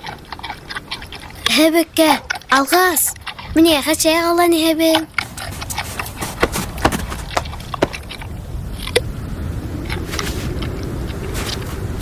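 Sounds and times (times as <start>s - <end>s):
low wind rumble: 0.0s - 12.0s
footsteps crunching in snow: 5.2s - 8.1s.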